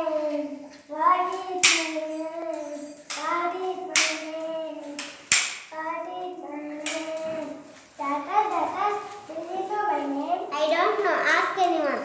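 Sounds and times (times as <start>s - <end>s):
child singing: 0.0s - 5.0s, 5.7s - 12.0s.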